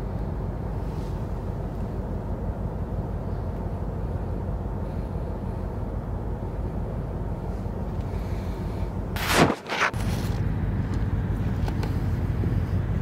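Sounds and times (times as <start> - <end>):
short falling swish: 9.2 - 10.1.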